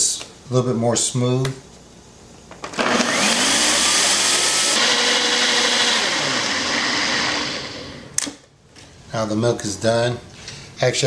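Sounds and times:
blender motor running: 2.8 - 8.1.

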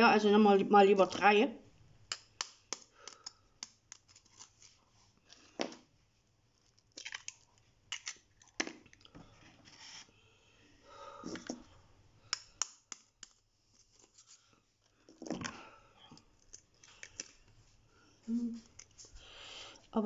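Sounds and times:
knife tapping and cracking eggshells: 2.1 - 4.5, 12.2 - 13.4.

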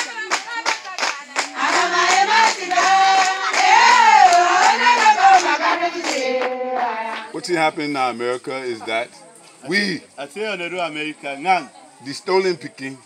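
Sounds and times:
group singing together: 0.0 - 7.5
rhythmic hand clapping: 0.0 - 7.5.

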